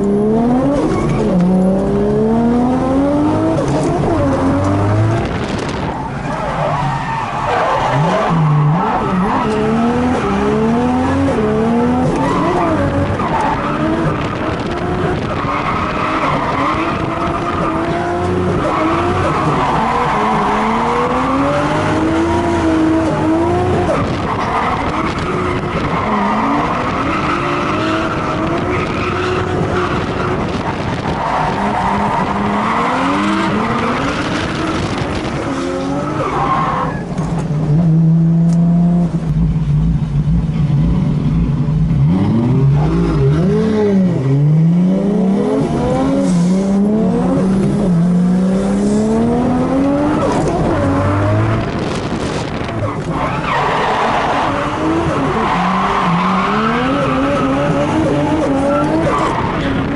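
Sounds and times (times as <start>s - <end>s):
car engine revving: 0.0s - 59.9s
tyres squealing and skidding: 5.8s - 10.6s, 15.3s - 22.1s, 23.8s - 34.8s, 35.4s - 37.3s, 52.8s - 59.9s.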